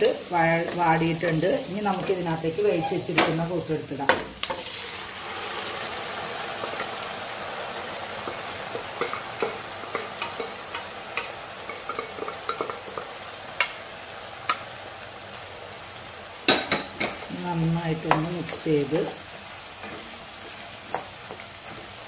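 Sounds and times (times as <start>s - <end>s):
food sizzling in a pan: 0.0s - 22.0s
utensil clicking on pan: 8.2s - 13.8s, 14.4s - 14.7s.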